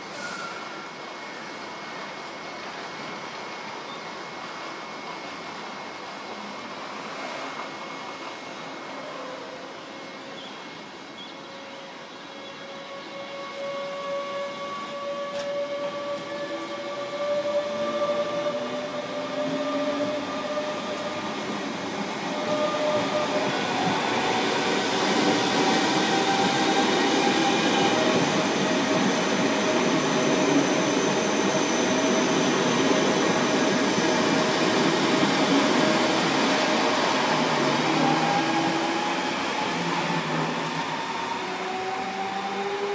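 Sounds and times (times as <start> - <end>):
train wheels rolling on rails: 12.6 - 42.9.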